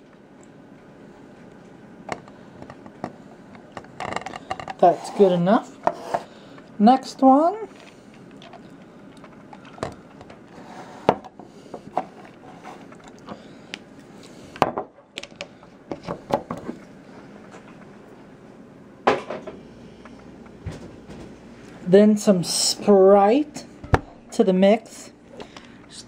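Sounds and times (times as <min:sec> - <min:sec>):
plastic cups on wooden table: 0:03.8 - 0:06.3, 0:07.7 - 0:13.4.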